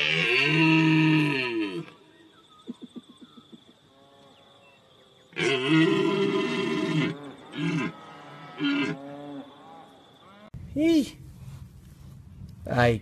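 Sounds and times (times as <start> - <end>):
deer stag roaring: 5.4 - 10.6.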